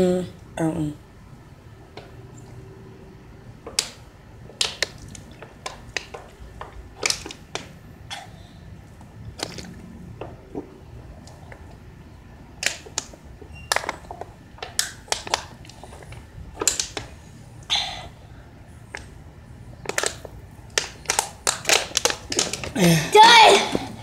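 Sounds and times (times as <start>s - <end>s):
plastic bottles crackling: 3.7s - 7.8s, 8.9s - 11.7s, 12.6s - 17.3s, 19.8s - 24.0s.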